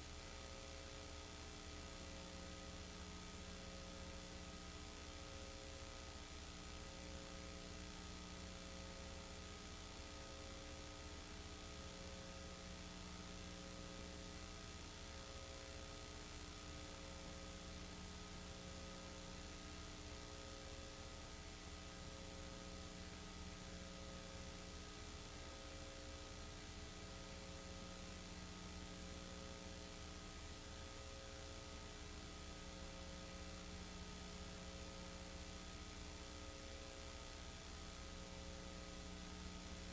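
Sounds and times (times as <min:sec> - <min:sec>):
mains hum and hiss: 0:00.0 - 0:39.9.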